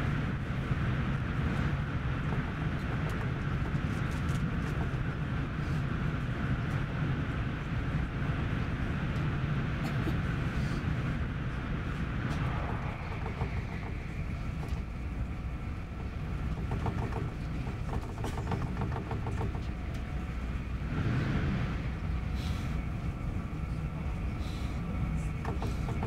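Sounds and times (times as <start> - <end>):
train interior rumble: 0.0 - 26.0.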